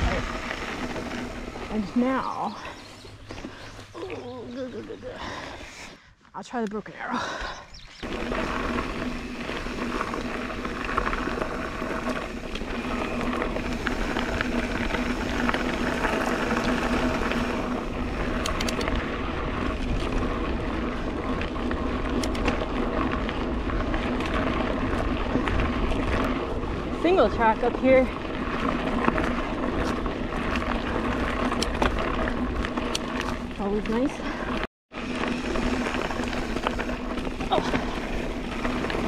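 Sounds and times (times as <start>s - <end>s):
bike clicks and rattles: 0.0s - 5.3s, 7.8s - 39.0s
low hum: 0.0s - 39.0s
tyre and wind noise: 7.2s - 39.0s.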